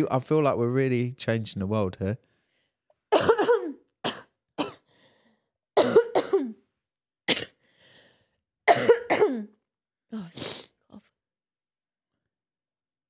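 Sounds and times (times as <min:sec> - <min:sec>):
person coughing: 0:03.1 - 0:04.9, 0:05.8 - 0:06.6, 0:07.3 - 0:07.6, 0:08.7 - 0:09.6.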